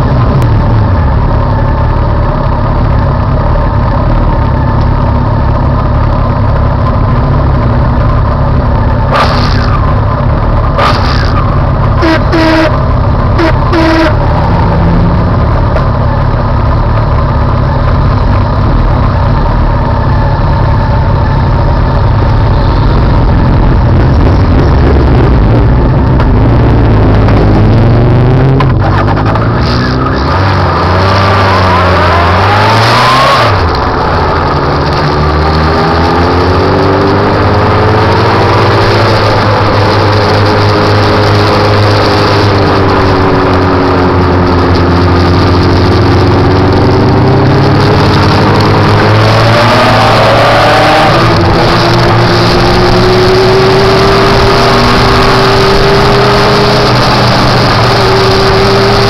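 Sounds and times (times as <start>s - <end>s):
motorcycle engine revving: 0.0s - 59.0s
short horn beeps: 12.0s - 14.3s.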